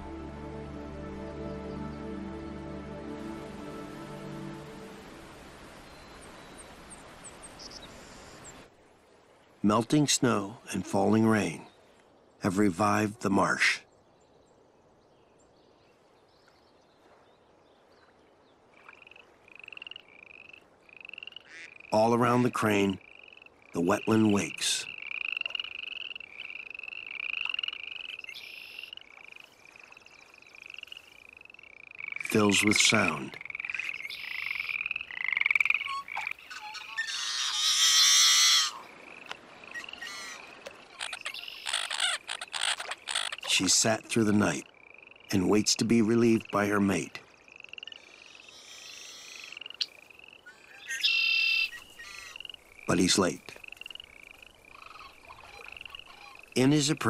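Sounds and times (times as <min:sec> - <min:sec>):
frogs calling: 0:18.6 - 0:57.0
high pulsed frog trills: 0:18.8 - 0:22.0, 0:22.7 - 0:43.5, 0:44.4 - 0:45.4, 0:46.3 - 0:56.6.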